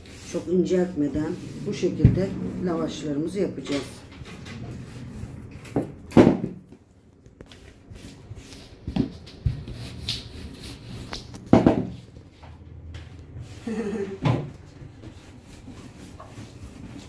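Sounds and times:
low steady hum: 0:00.0 - 0:07.2
knocks and thumps on a worktop: 0:05.8 - 0:06.6, 0:11.5 - 0:12.0.

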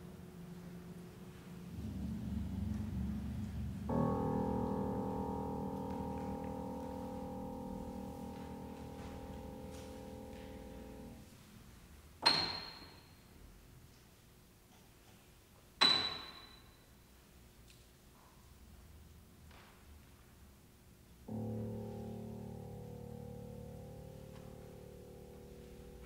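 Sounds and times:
high piano notes: 0:00.0 - 0:11.3, 0:21.3 - 0:26.0
piano chord ringing: 0:00.0 - 0:11.3, 0:21.3 - 0:26.0.

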